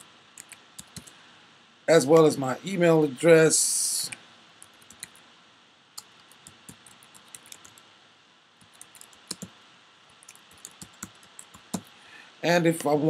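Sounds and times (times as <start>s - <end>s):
computer keyboard keystrokes: 0.4s - 1.1s, 4.6s - 5.2s, 6.0s - 7.8s, 8.6s - 9.5s, 10.2s - 11.9s.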